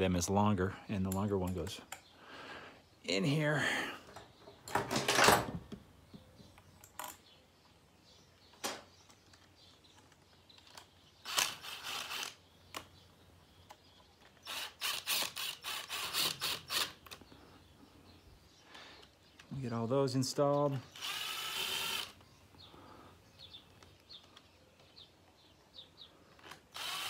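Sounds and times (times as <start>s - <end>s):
cordless drill running: 11.2s - 12.4s, 14.4s - 17.0s, 20.9s - 22.2s, 26.4s - 27.0s.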